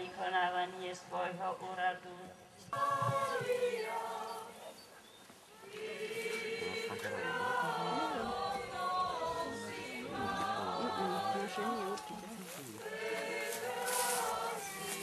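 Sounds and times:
congregation singing: 2.7s - 4.9s, 5.6s - 15.0s.

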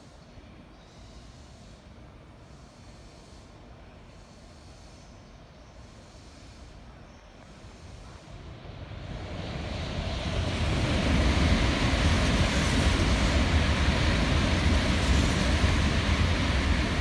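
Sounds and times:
high-speed train passing: 5.8s - 17.0s
wheels rushing on rail: 7.6s - 17.0s.

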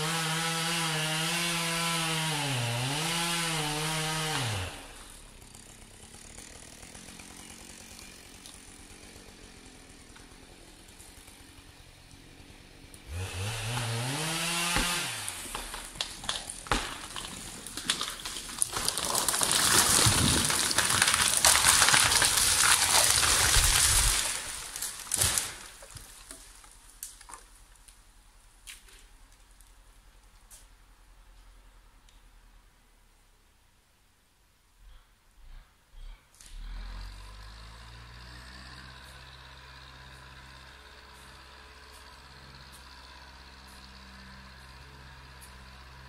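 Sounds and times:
chainsaw revving: 0.0s - 26.0s, 36.0s - 46.0s
tree cracking: 2.9s - 11.8s, 13.0s - 30.4s
tree crashing through branches: 13.1s - 27.5s.

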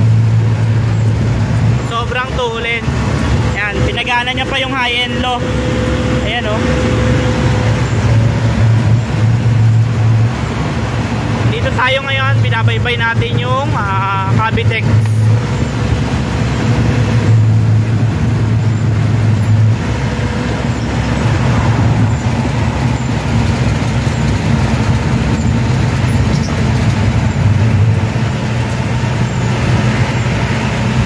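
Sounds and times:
loud road noise: 0.0s - 31.0s.

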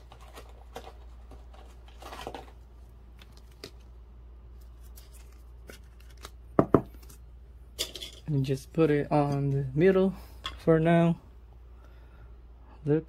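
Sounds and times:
cards clicking and rustling: 0.0s - 7.2s
steady low hum: 0.0s - 13.0s.

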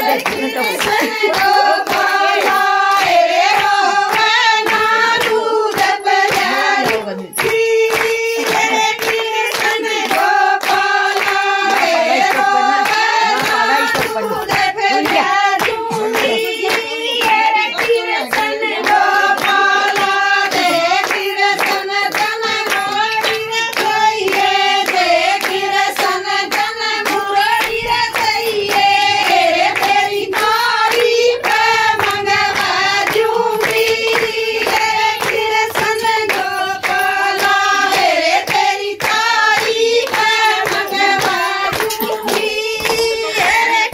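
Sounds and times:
crowd hand-clapping: 0.0s - 43.9s
women singing together: 0.0s - 43.9s.

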